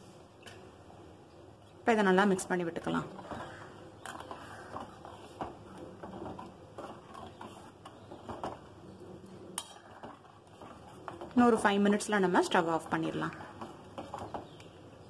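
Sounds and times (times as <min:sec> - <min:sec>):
steel ladle scraping a pot: 0:03.0 - 0:08.7, 0:09.6 - 0:11.8.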